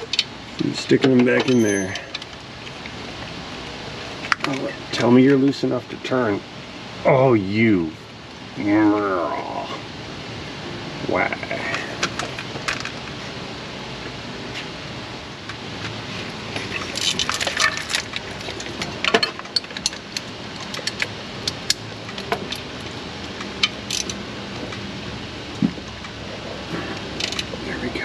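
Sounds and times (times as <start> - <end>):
steady background hum: 0.0 - 28.0
hand tools clinking on metal: 0.9 - 2.2.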